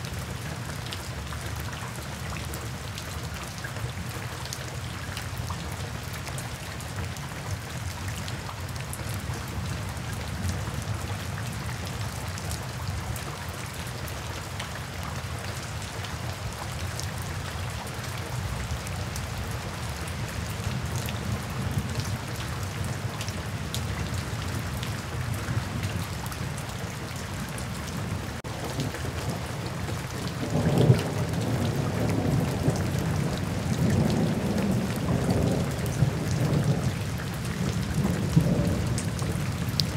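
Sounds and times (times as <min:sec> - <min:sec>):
rain splashing on pavement: 0:00.0 - 0:39.9
low rumble of thunder: 0:28.0 - 0:39.9.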